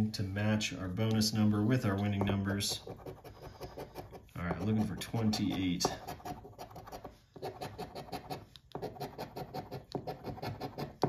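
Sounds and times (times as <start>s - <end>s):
coin scratching lottery ticket: 2.6s - 11.0s.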